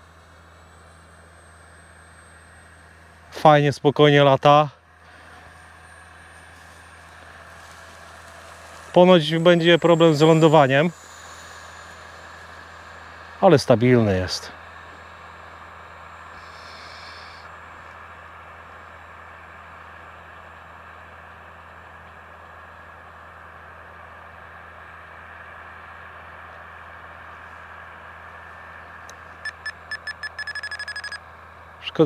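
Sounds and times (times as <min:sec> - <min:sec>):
sharp electronic beeps: 0:29.4 - 0:31.2.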